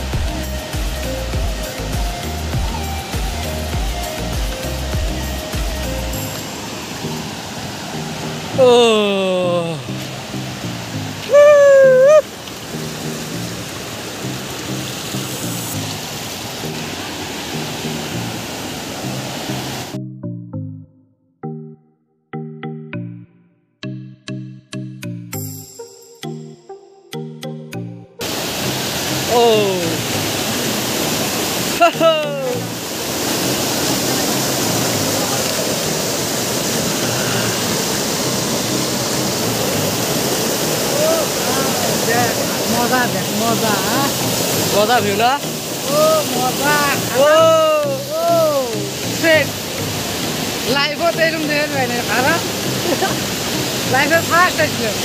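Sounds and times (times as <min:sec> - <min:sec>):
soft low background music: 0:00.0 - 0:12.0, 0:31.8 - 0:55.0
small waterfall rushing: 0:00.0 - 0:20.0, 0:28.2 - 0:55.0.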